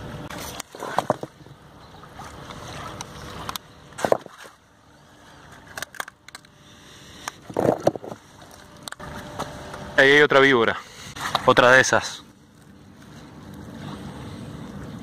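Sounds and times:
stones and debris knocking: 0.6s - 1.4s, 4.0s - 4.5s.

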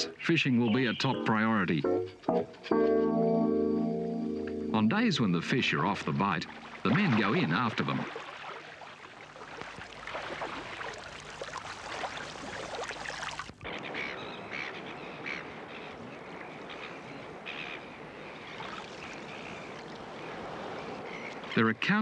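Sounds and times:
gulls calling: 0.0s - 1.9s, 4.9s - 22.0s
water splashing and sloshing: 4.4s - 22.0s
water lapping: 5.1s - 22.0s.

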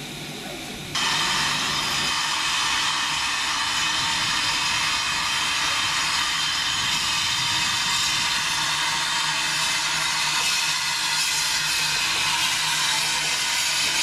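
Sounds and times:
steam locomotive hissing: 0.0s - 14.0s.

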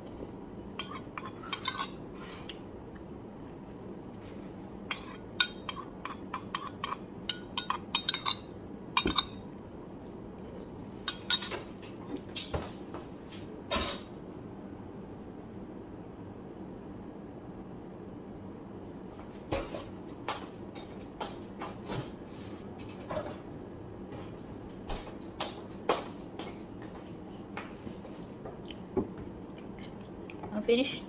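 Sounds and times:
spoon clinking on ceramic bowl: 0.8s - 2.0s, 4.9s - 9.4s, 11.1s - 11.6s.

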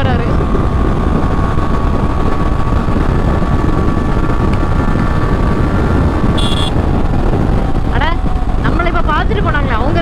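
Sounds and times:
motorcycle engine: 0.0s - 10.0s
wind and road noise: 0.0s - 10.0s
short high beep: 6.4s - 6.8s.

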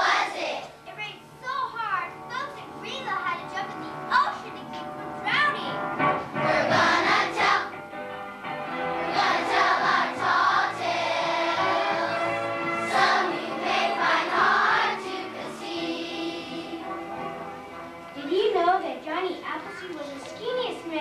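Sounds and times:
children singing in a choir: 6.4s - 7.7s, 9.1s - 16.9s.

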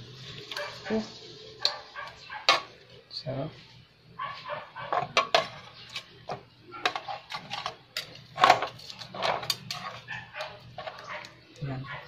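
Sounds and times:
knife and tongs scraping metal tray: 6.8s - 11.3s.

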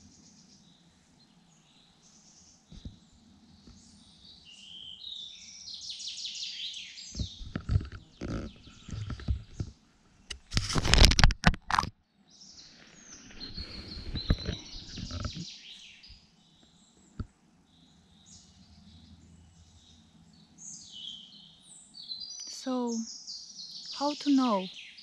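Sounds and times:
birds singing: 0.0s - 10.3s, 12.2s - 25.0s
camera handling rustling and thumping: 7.2s - 9.7s, 10.3s - 11.9s, 13.3s - 15.4s.

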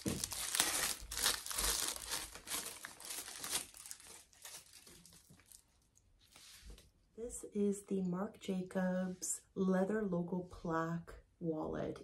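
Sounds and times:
packaging crinkling and rustling: 0.0s - 6.0s.

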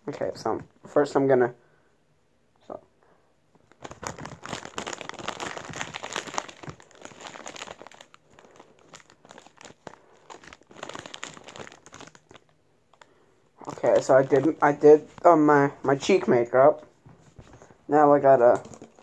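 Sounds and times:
plastic bottle crinkling: 3.6s - 15.4s, 18.4s - 19.0s.

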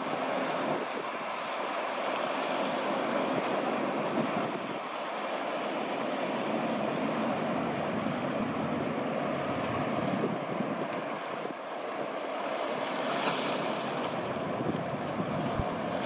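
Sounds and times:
small waves breaking on shore: 0.0s - 16.0s
wind on microphone: 14.2s - 16.0s.

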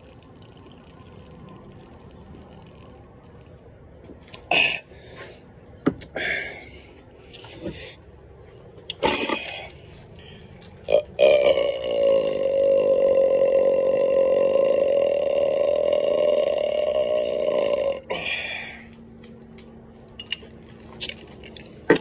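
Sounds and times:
man belching: 10.8s - 18.5s
breathy bursts: 18.0s - 19.0s.

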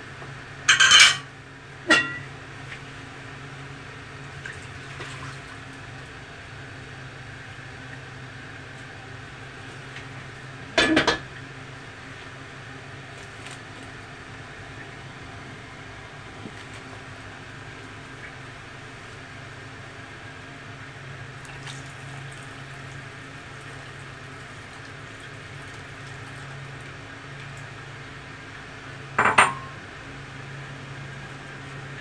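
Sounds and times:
steady low hum: 0.0s - 32.0s
metal wok clanking on stove grate: 1.9s - 2.3s, 29.2s - 29.8s
broth pouring into pot: 21.2s - 26.9s.

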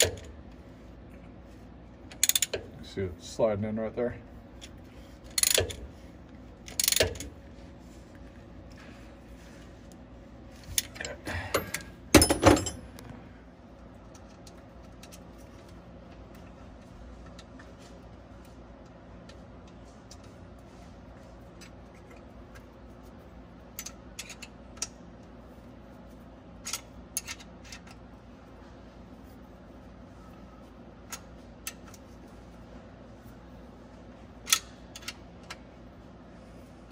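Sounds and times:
wrench clanking on metal: 5.3s - 5.8s, 6.7s - 7.3s, 10.8s - 12.9s.

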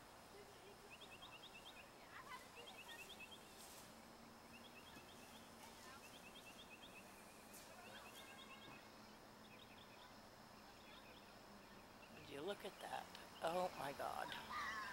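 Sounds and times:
faint high chirping: 0.4s - 3.8s, 4.4s - 12.3s.

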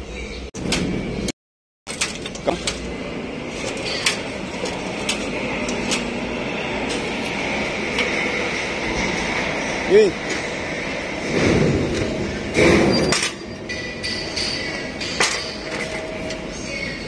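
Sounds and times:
metallic clanks and knocks: 1.9s - 2.9s, 11.2s - 16.4s
steady mechanical hum: 1.9s - 17.0s.

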